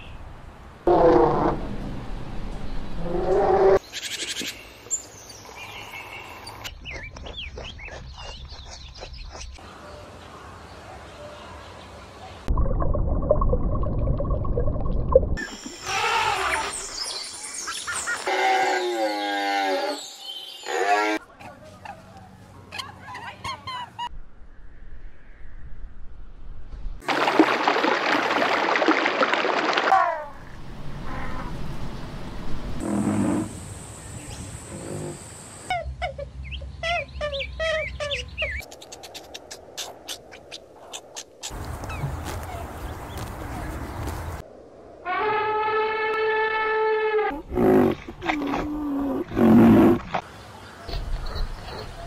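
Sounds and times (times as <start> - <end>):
small birds chirping: 3.8 - 12.0, 33.6 - 44.4
running water: 27.0 - 30.3.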